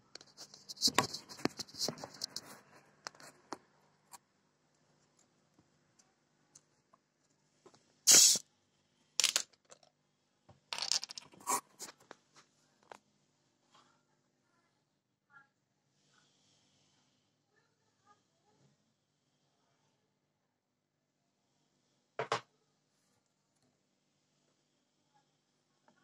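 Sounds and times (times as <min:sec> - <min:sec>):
carbonation hissing from bottle: 0:08.1 - 0:08.4.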